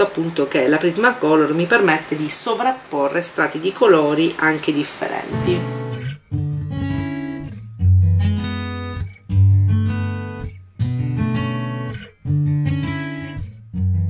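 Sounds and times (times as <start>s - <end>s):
acoustic guitar strumming: 5.2s - 14.0s.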